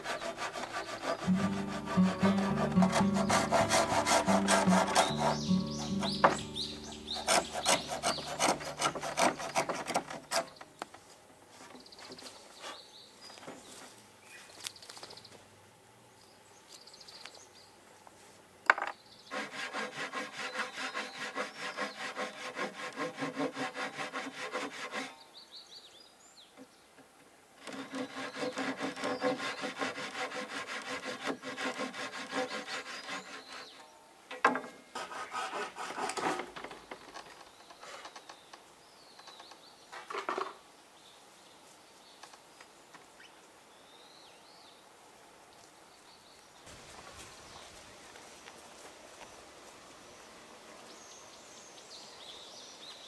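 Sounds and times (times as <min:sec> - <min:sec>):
hand saw cutting wood: 0:00.0 - 0:10.6, 0:19.3 - 0:25.2, 0:27.6 - 0:33.8, 0:34.9 - 0:36.6.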